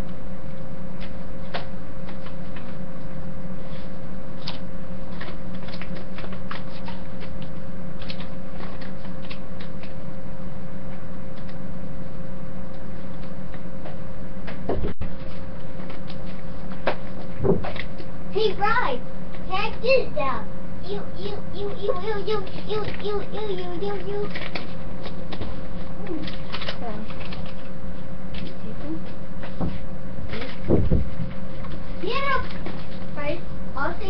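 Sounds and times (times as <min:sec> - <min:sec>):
loud steady hum: 0:00.0 - 0:34.0
paper rustling and clicking: 0:01.0 - 0:02.8, 0:03.7 - 0:10.0, 0:11.3 - 0:11.6, 0:15.2 - 0:18.1, 0:21.8 - 0:28.7, 0:30.3 - 0:31.0, 0:31.6 - 0:33.1.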